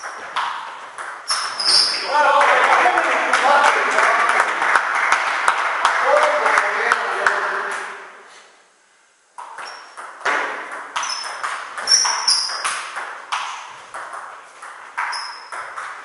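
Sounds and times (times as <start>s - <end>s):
short high squeaks: 1.3s - 2.0s, 9.6s - 10.0s, 11.0s - 12.7s, 15.0s - 15.7s.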